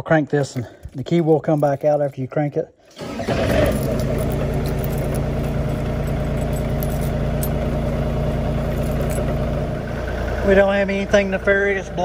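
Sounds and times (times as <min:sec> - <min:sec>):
diesel engine idling: 0:03.0 - 0:12.0.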